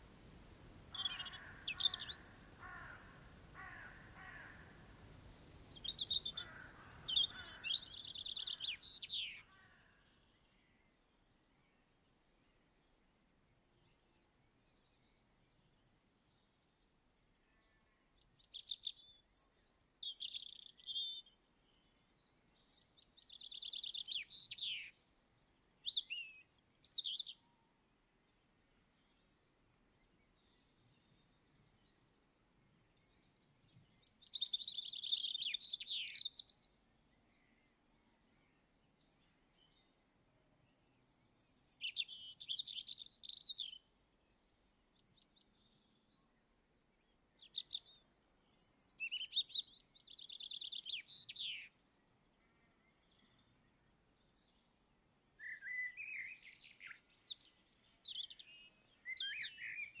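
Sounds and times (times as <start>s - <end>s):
songbird warbling: 0.2s - 4.8s, 5.7s - 9.5s.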